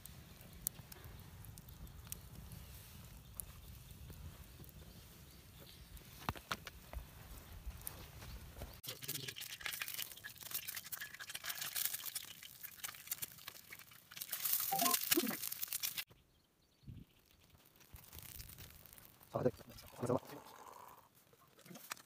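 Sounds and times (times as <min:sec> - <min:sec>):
campfire crackling: 0:00.0 - 0:16.1, 0:17.1 - 0:22.0
egg sizzling and popping in oil: 0:08.8 - 0:16.1, 0:17.1 - 0:19.9.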